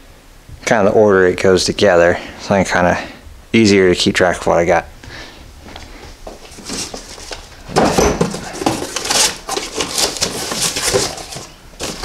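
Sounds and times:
cardboard boxes sliding and rustling: 6.3s - 12.0s.

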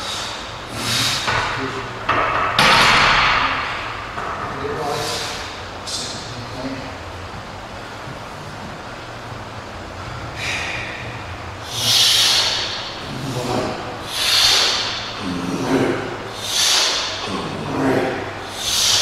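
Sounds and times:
man breathing hard through teeth: 10.1s - 13.3s, 14.0s - 15.2s, 16.3s - 17.3s.

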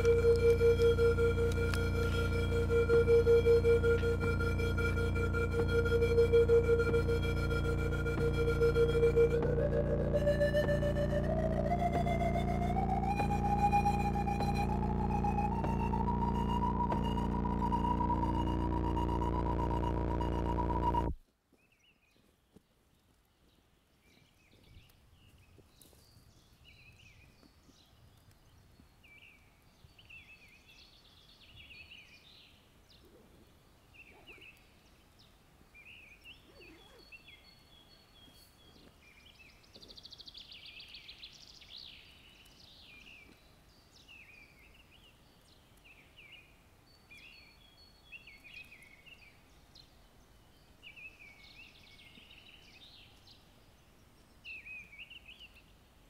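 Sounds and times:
low background rumble: 0.0s - 21.2s.

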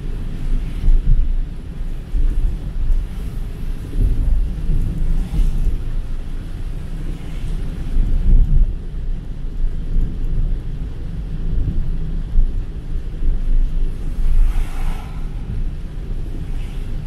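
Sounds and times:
car driving on wet road: 0.0s - 17.0s
tyre spray hiss of passing truck: 13.9s - 17.0s.

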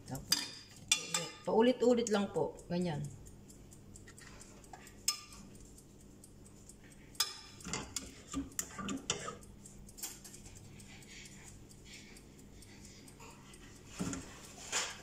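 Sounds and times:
metal spoons clinking and scraping: 0.2s - 1.5s, 7.2s - 9.4s.

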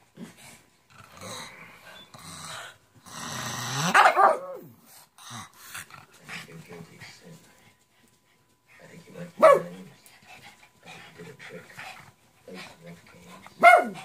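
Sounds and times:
small dogs growling: 0.0s - 6.4s
dog barking: 3.9s - 4.6s, 9.4s - 9.8s, 13.6s - 14.0s.

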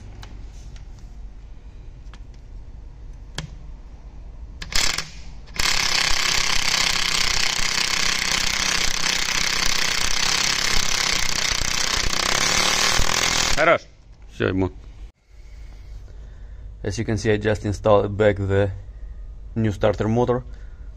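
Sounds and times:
air wrench running: 4.6s - 13.7s.

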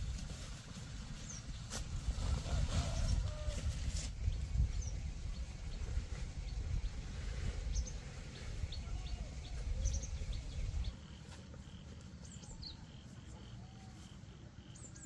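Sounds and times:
lower bird calls: 7.4s - 15.0s.

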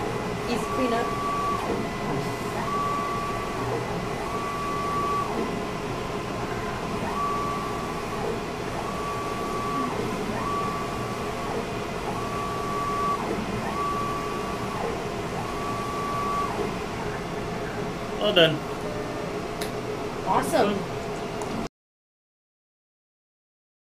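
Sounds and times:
steady machine whirring: 0.0s - 21.6s
short high motor whine: 6.4s - 16.8s.

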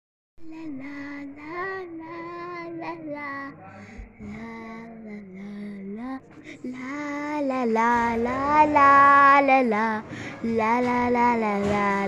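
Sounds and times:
child singing wordless melody: 0.4s - 3.6s, 4.2s - 12.0s.

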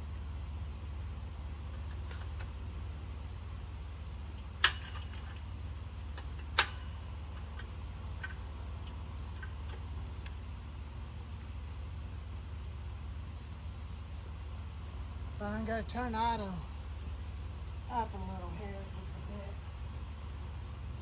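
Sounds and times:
steady low hum: 0.0s - 21.0s
faint ticks: 6.1s - 10.4s.

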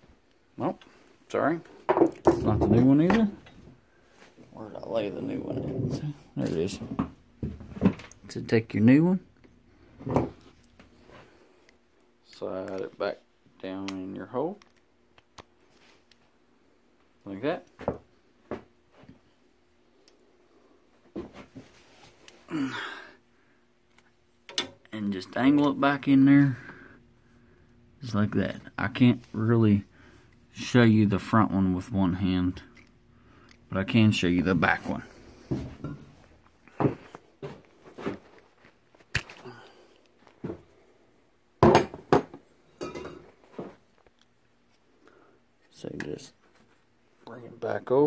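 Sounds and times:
person sighing: 22.5s - 23.2s, 39.4s - 40.0s.

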